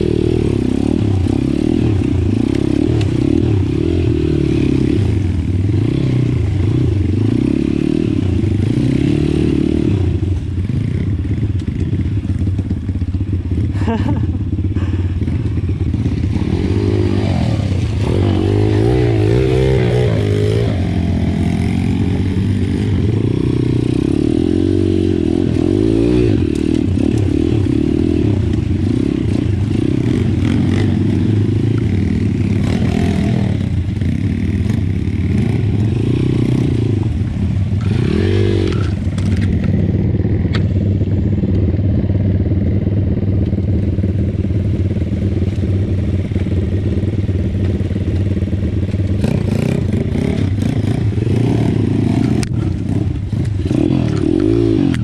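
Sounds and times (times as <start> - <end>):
motorbike engine revving: 13.0 - 55.0.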